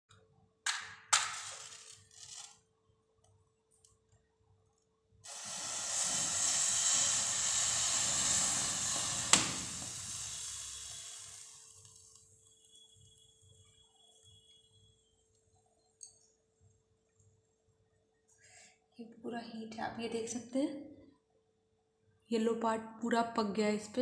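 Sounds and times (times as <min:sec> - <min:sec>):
matchstick heads igniting hiss: 0:01.2 - 0:02.6, 0:05.3 - 0:13.3
sharp crack: 0:05.3 - 0:10.0
match struck on box: 0:05.3 - 0:12.2.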